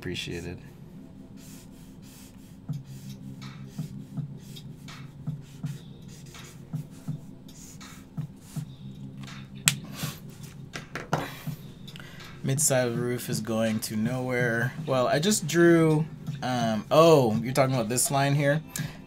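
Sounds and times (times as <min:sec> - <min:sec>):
marker strokes on paper: 0:01.4 - 0:08.7.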